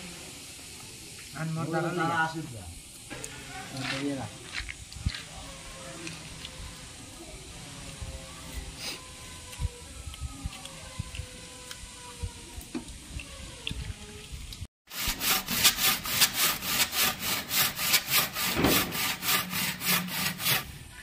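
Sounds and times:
hand saw cutting wood: 14.9 - 20.9.

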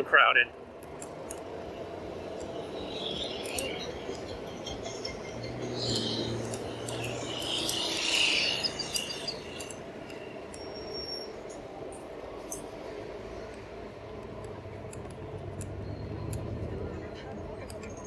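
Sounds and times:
passing engine hum: 0.0 - 18.0
road and traffic noise: 0.0 - 18.0
high-pitched chirps: 2.4 - 9.8.

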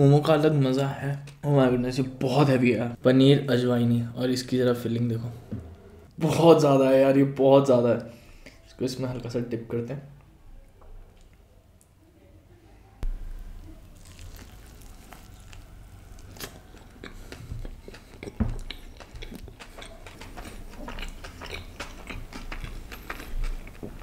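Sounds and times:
wet chewing mouth sounds: 13.6 - 24.0
biting into bread: 13.9 - 24.0.

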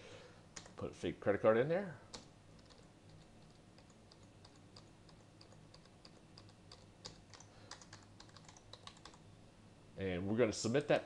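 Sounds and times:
steady low hum: 0.0 - 11.0
faint keyboard keystrokes: 2.1 - 9.2.

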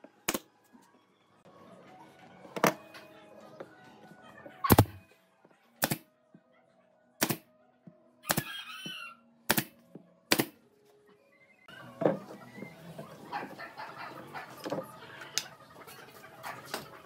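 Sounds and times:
nail gun firing: 5.8 - 6.0, 7.2 - 7.4, 9.5 - 9.7, 10.3 - 10.5.

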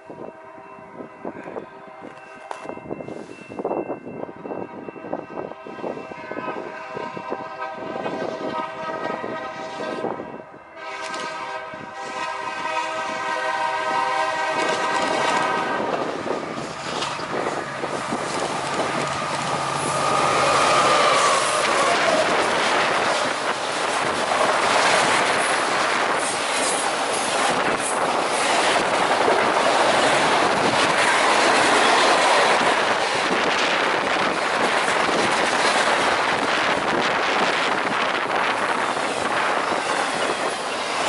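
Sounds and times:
diesel locomotive engine: 0.0 - 41.0
wheel-on-rail noise: 14.4 - 41.0.

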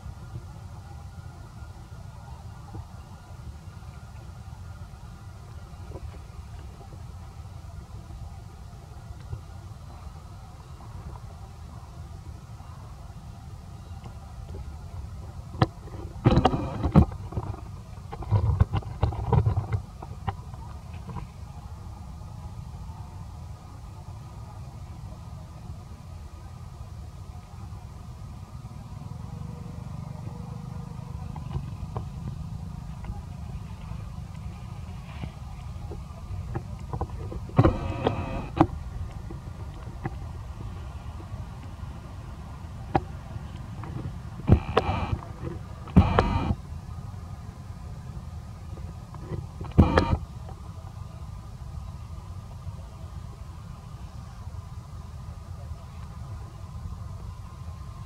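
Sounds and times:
low wind rumble on microphone: 0.0 - 58.0
sharp clicks: 44.5 - 45.2, 45.9 - 46.6, 49.7 - 50.2.

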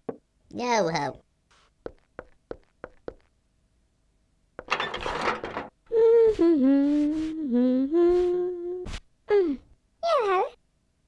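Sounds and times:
high voice moaning: 5.9 - 10.4.

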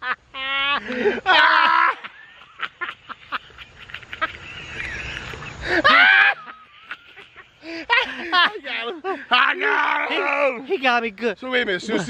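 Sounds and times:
man yelling: 8.4 - 11.0.

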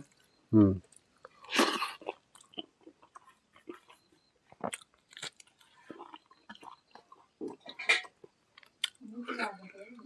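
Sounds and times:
sharp crunches and clicks: 0.0 - 9.0
chewing and mouth smacks: 0.9 - 9.4.

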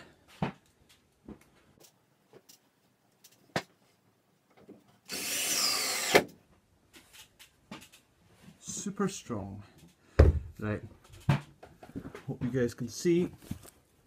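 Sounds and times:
power drill into wood: 5.1 - 6.3.

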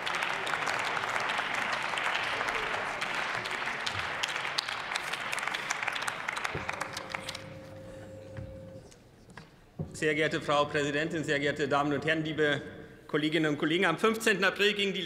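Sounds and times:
many hands clapping: 0.0 - 7.8.

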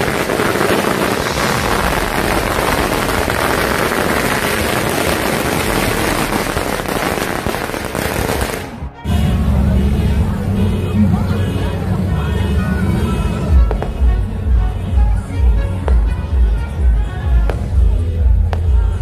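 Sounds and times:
firecrackers crackling: 0.0 - 9.3, 13.5 - 14.6, 15.3 - 19.0.

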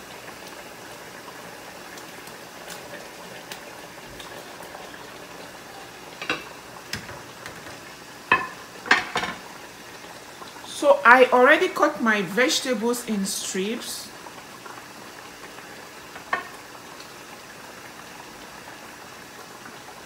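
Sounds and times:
sauce bubbling in a pot: 0.0 - 20.0
knocks and clinks in a pot: 6.2 - 9.4.

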